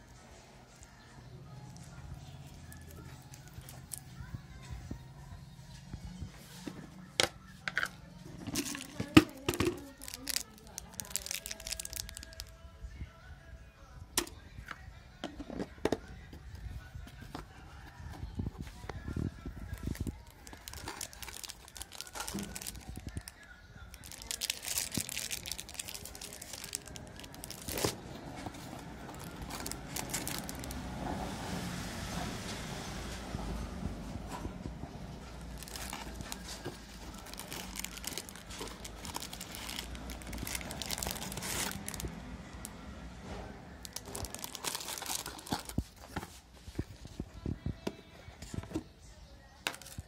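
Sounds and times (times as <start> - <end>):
plastic wrappers crinkling: 1.7 - 4.0, 7.8 - 12.5, 19.7 - 30.8, 35.2 - 42.7, 43.8 - 46.4, 49.6 - 50.0.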